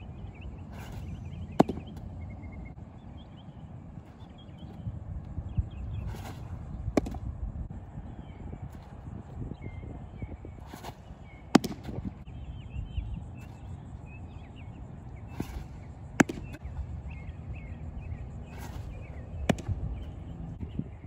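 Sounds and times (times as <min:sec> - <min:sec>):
birds chirping: 0:00.0 - 0:21.0
scuffing rush of pitcher's delivery: 0:00.6 - 0:02.0, 0:05.7 - 0:07.3, 0:10.5 - 0:12.2, 0:15.3 - 0:16.6, 0:18.4 - 0:20.1
baseball popping into catcher's mitt: 0:01.0 - 0:02.2, 0:06.0 - 0:07.3, 0:10.7 - 0:12.1, 0:15.4 - 0:16.7, 0:19.4 - 0:20.1.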